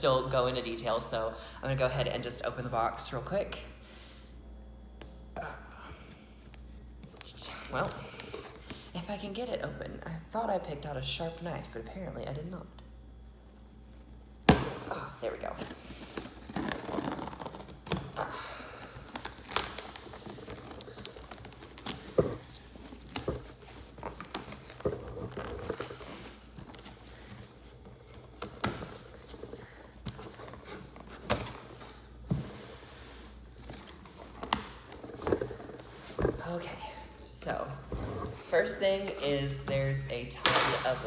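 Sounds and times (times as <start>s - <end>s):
packing paper rustling: 15.6s - 32.1s.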